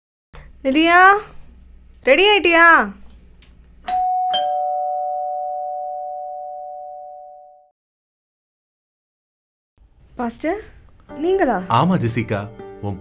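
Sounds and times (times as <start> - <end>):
two-tone doorbell chime: 3.9 - 7.7.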